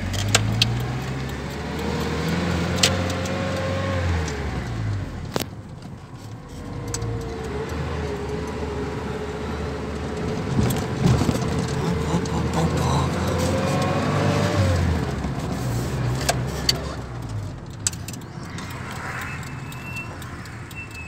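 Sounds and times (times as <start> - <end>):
van engine: 0.0 - 21.0
cab clicks and rattles: 9.9 - 12.6.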